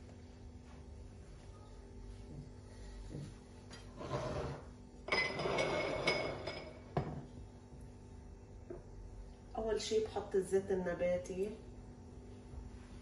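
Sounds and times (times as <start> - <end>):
kitchenware clatter: 4.4 - 7.3
kitchenware clinking and knocking: 5.0 - 7.3.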